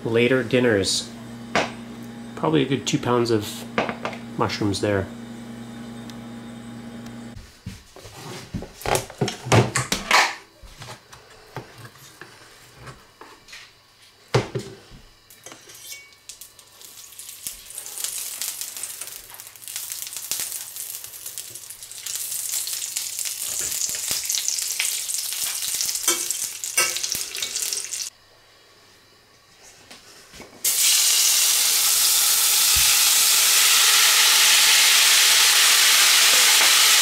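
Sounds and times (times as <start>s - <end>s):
fat sizzling in a skillet: 15.6s - 28.1s, 30.6s - 37.0s.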